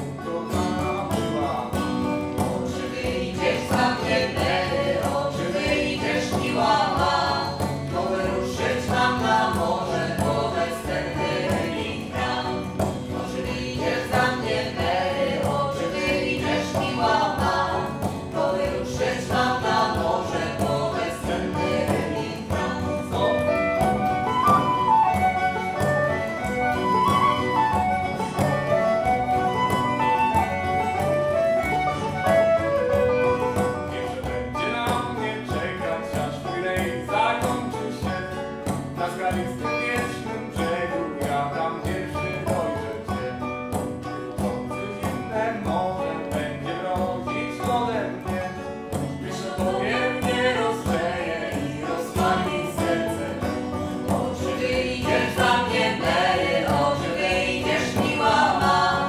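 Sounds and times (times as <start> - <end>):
voices singing: 0.0 - 43.7, 44.4 - 59.0
banjo: 0.0 - 59.0
hand drum: 0.0 - 59.0
strummed acoustic guitar: 0.0 - 59.0
flute melody: 23.3 - 34.7.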